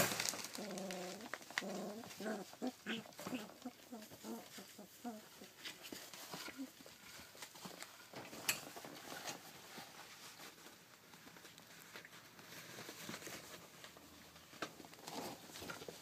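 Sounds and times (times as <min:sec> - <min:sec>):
puppy paws pattering on floor: 0:00.0 - 0:16.0.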